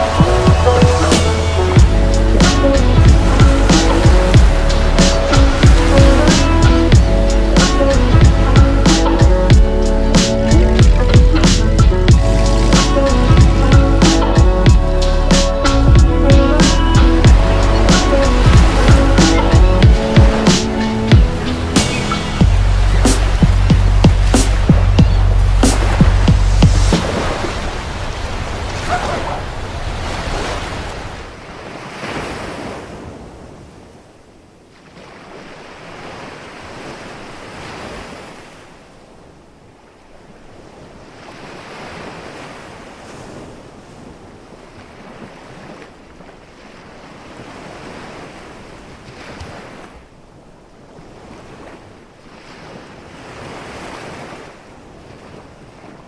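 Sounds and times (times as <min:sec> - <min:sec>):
surf washing onto beach: 0:00.0 - 0:14.7, 0:16.2 - 0:33.8
music: 0:00.0 - 0:27.1
wind: 0:00.0 - 0:56.0.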